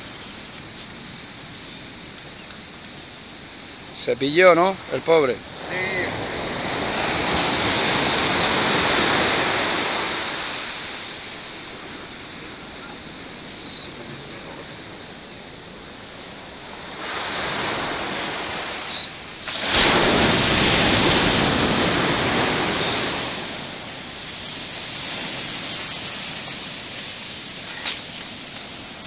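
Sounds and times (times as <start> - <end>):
sea surf breaking: 0.0 - 29.0.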